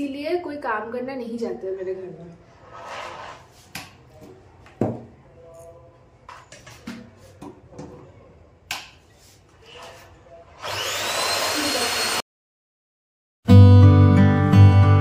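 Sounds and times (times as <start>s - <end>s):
vacuum cleaner running: 10.6s - 12.2s.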